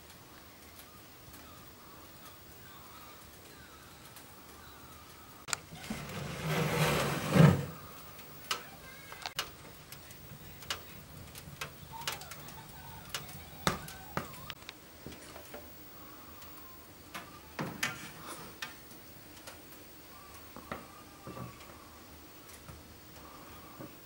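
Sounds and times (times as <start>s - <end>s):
metal oven door opening clatter: 5.8s - 7.8s.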